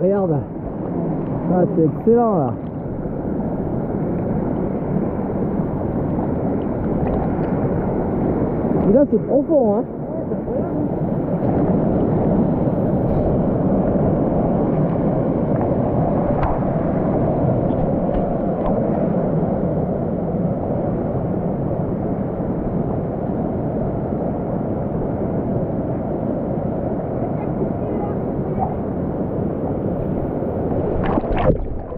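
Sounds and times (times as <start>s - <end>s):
stream water rushing: 0.0s - 19.9s, 26.8s - 31.9s.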